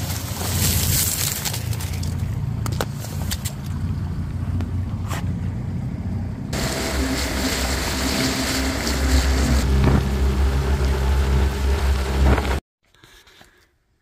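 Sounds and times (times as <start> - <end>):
wind: 0.0 - 14.0
outboard motor running: 6.6 - 12.6
rushing water: 6.6 - 12.6.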